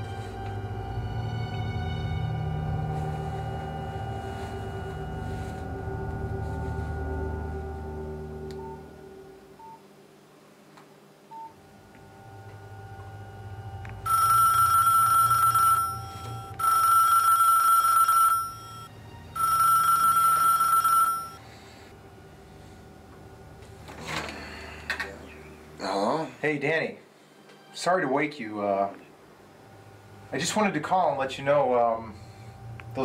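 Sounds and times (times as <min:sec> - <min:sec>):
telephone ringing: 0:14.0 - 0:21.4.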